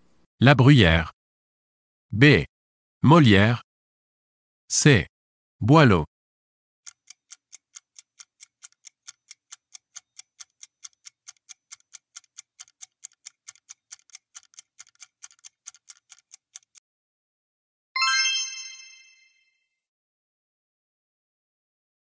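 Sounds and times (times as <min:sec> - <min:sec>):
clock ticking: 0:06.8 - 0:16.8.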